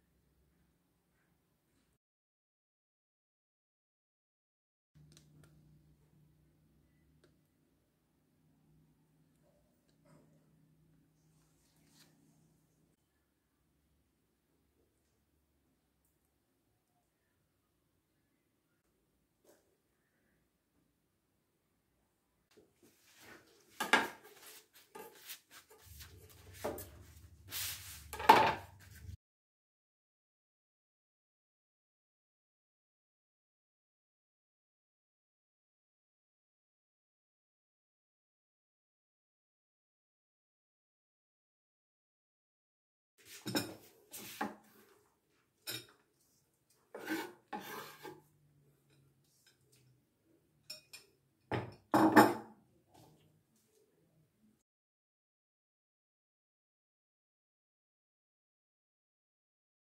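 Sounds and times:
knife scraping cutting board: 0:23.1 - 0:29.2, 0:46.9 - 0:48.3.

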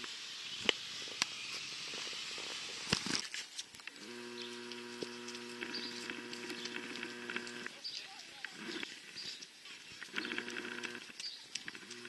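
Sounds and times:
light outdoor hiss: 0:00.0 - 0:12.0
faint clicks: 0:02.9 - 0:12.0
camcorder zoom motor whining: 0:03.9 - 0:07.7, 0:08.6 - 0:08.9, 0:10.1 - 0:11.1, 0:11.7 - 0:12.0.

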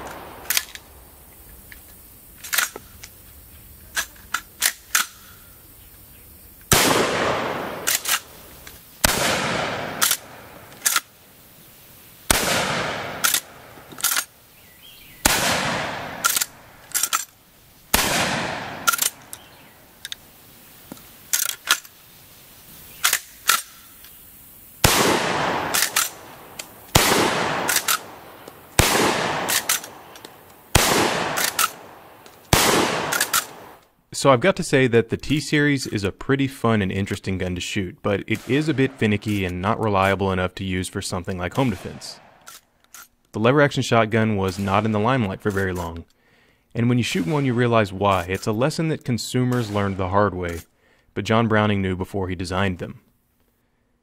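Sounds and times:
shotgun shots: 0:00.0 - 0:01.0, 0:06.7 - 0:11.1, 0:12.3 - 0:14.3, 0:15.2 - 0:17.2, 0:17.9 - 0:19.4, 0:24.8 - 0:33.8.

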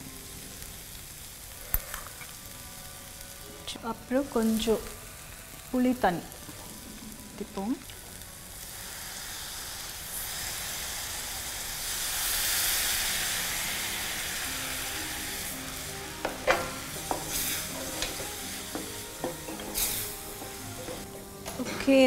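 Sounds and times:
mixture sizzling in a hot pan: 0:00.0 - 0:22.0
wooden spatula knocking against pan: 0:16.2 - 0:21.1.

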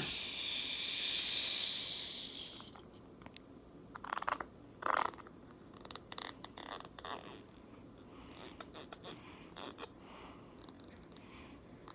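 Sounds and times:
soft hiss: 0:00.0 - 0:03.0.

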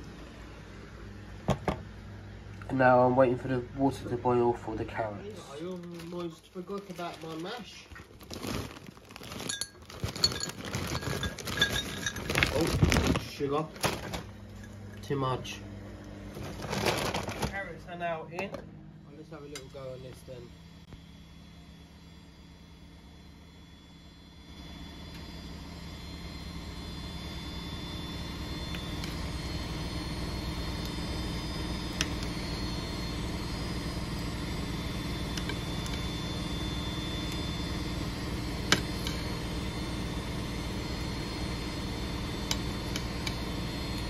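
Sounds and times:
washing machine humming: 0:00.0 - 0:44.0.

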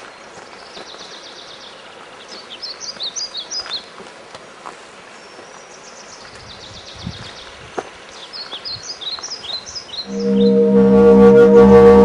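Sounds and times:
small birds chirping: 0:00.0 - 0:04.0, 0:05.0 - 0:10.6
steady outdoor hiss: 0:00.0 - 0:12.0
bird trill: 0:10.0 - 0:10.8.

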